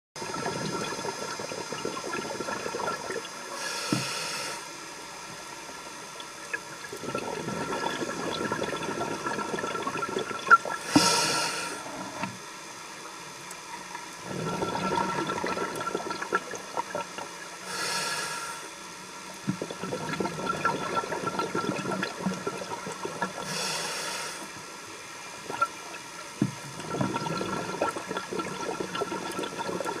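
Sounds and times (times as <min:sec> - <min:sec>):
bubbling exhalation: 0:00.2 - 0:03.3, 0:06.9 - 0:12.1, 0:14.2 - 0:17.3, 0:19.5 - 0:23.6, 0:26.7 - 0:30.0
regulator inhalation hiss: 0:03.4 - 0:04.9, 0:10.8 - 0:12.2, 0:17.6 - 0:18.8, 0:23.4 - 0:24.7.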